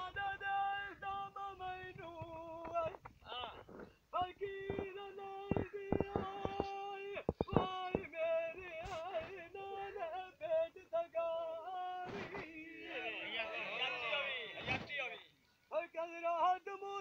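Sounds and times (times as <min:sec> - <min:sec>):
short sharp knocks: 0:02.1 - 0:09.2.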